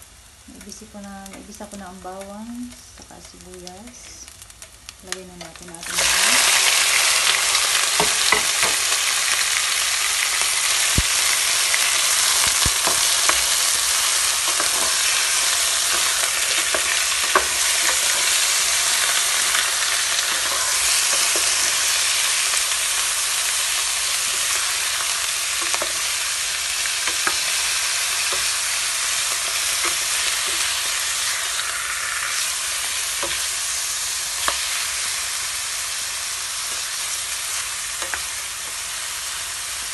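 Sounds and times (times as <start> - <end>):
chicken sizzling in hot oil: 3.3 - 39.9
spatula scraping and tapping pan: 7.9 - 8.9, 12.2 - 22.0, 25.6 - 26.2, 27.0 - 27.6.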